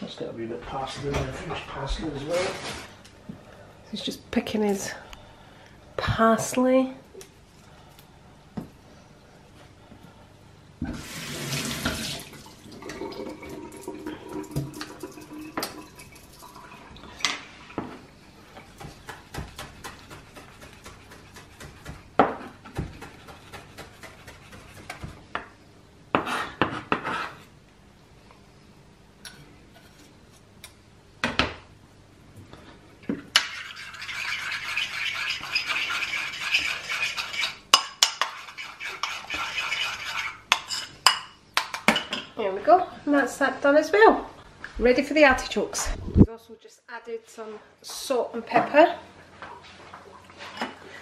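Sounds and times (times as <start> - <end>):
knife chopping on plastic board: 18.8 - 25.5
spoon scraping ceramic bowl: 33.4 - 41.0.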